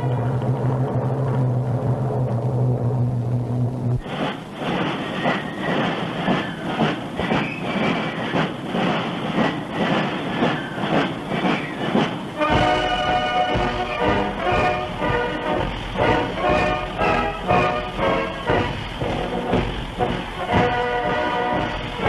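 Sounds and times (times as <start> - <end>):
band music with held notes: 12.4 - 22.0.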